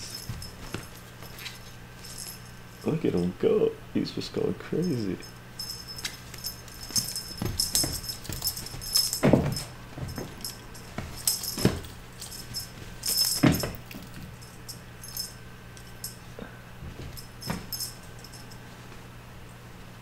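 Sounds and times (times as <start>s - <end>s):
kittens scuffling: 0.0s - 3.4s, 4.8s - 19.0s
toy jingling: 0.0s - 3.4s, 4.8s - 16.3s, 17.1s - 18.6s
soft thumps of kittens landing: 6.8s - 14.1s, 16.8s - 18.0s.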